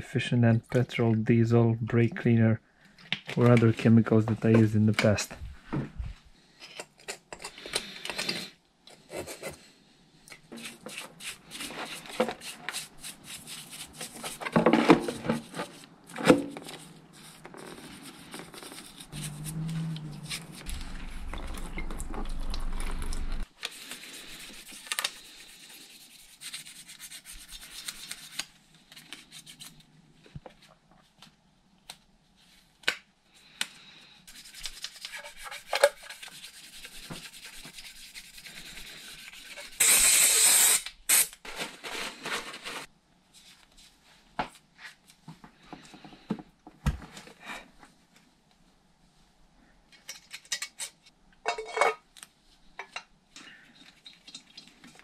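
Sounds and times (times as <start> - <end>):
stiff brush scrubbing metal parts: 16.7 - 23.4
sandpaper rubbing on metal: 17.2 - 20.8, 23.8 - 28.4, 34.3 - 40.8.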